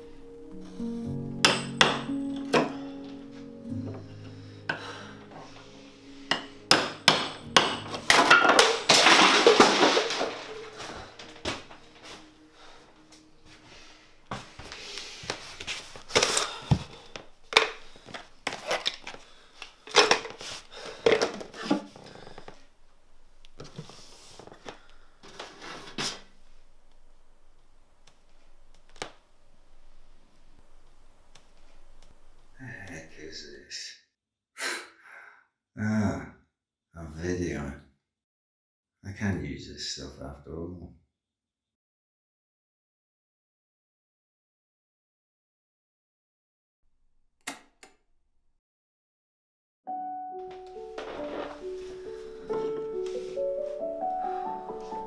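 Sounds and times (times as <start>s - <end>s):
mallet knocking a chisel into wood: 1.5s - 2.7s, 6.3s - 8.7s
rough scraping noise: 51.0s - 52.1s.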